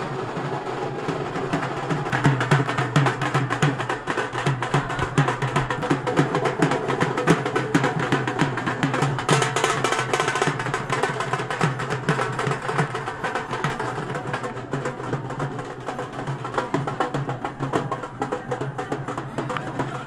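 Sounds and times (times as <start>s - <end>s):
drums beaten with sticks: 0.0s - 20.0s.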